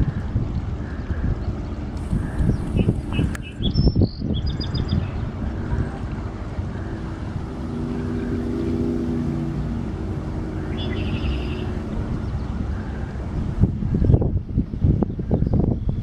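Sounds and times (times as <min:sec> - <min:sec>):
engine drone: 0:00.0 - 0:15.6
bird chirping: 0:02.4 - 0:06.0, 0:10.5 - 0:12.7.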